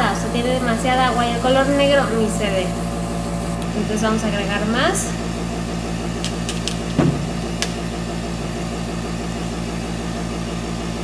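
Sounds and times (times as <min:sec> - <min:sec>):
airbrush compressor humming: 0:00.0 - 0:11.0
loud knock: 0:06.9 - 0:07.8.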